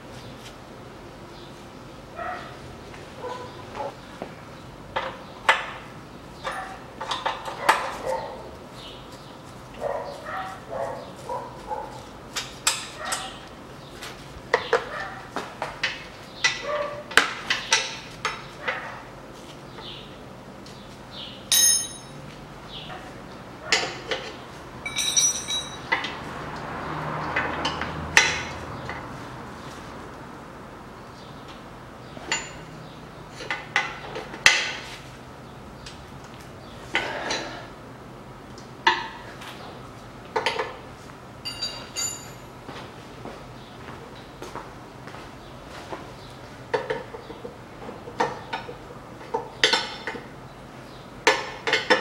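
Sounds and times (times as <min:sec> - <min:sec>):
dog barking: 0:02.2 - 0:02.6, 0:03.2 - 0:04.0, 0:06.5 - 0:06.8, 0:07.5 - 0:08.5, 0:09.8 - 0:12.0, 0:13.0 - 0:13.4, 0:14.9 - 0:15.3, 0:16.6 - 0:17.1
bright metallic rings: 0:21.5 - 0:22.3, 0:24.8 - 0:25.9, 0:41.4 - 0:42.5
metal tools clinking on fittings: 0:21.5 - 0:22.3, 0:24.8 - 0:26.1, 0:32.3 - 0:32.7, 0:41.4 - 0:42.5.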